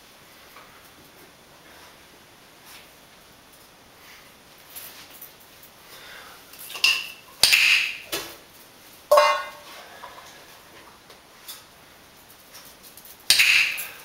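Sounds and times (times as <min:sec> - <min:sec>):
knocks and clatters on tiled floor: 0:09.1 - 0:10.2.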